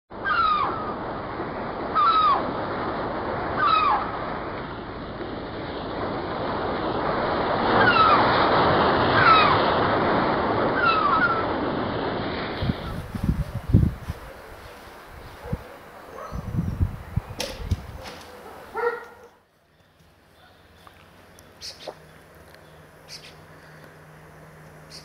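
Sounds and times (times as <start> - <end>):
ocean surf washing: 0.4 - 19.2
short falling calls: 21.5 - 24.1.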